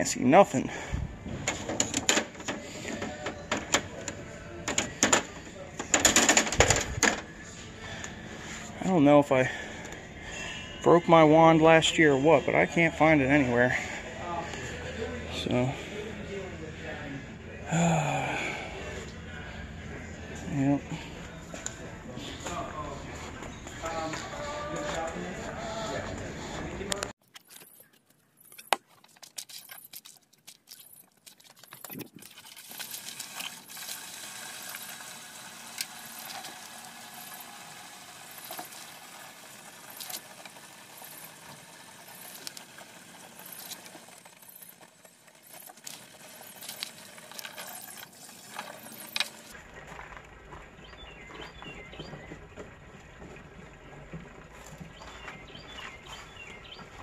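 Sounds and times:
water running from hose into tank: 0:29.3 - 0:49.6.

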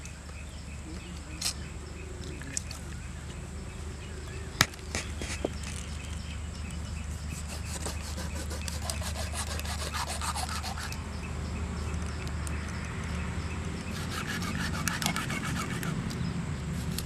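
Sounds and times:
knife scraping fish skin: 0:07.3 - 0:11.0, 0:13.9 - 0:16.0.

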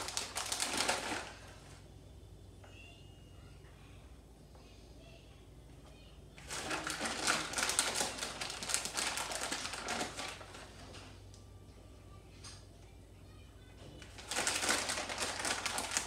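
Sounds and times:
plastic bag crinkling: 0:00.0 - 0:01.6, 0:06.4 - 0:11.0, 0:14.0 - 0:16.0.

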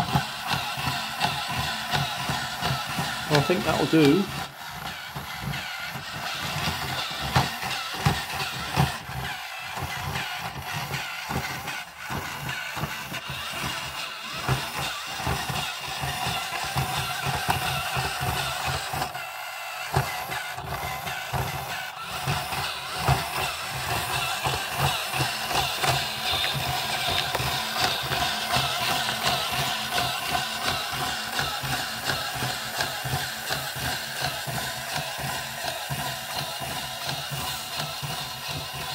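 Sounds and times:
toy motor whine: 0:00.0 - 0:38.9
plastic legs tapping on wood: 0:19.9 - 0:35.0.

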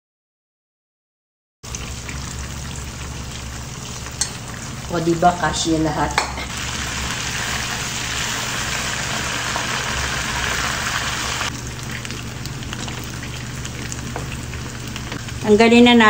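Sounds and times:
wings sizzling in hot oil: 0:01.6 - 0:16.0
metal tongs clicking in pot: 0:04.2 - 0:04.4.

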